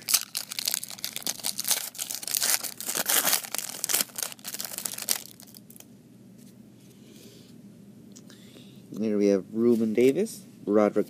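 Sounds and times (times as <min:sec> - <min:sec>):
wrapper tearing and crinkling: 0:00.0 - 0:05.8.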